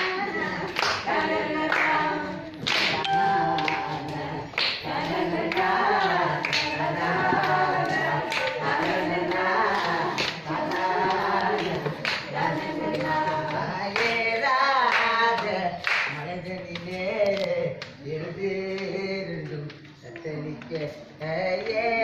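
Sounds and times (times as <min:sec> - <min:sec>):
women singing together: 0:00.0 - 0:22.0
hand claps: 0:02.6 - 0:14.2, 0:14.8 - 0:18.0.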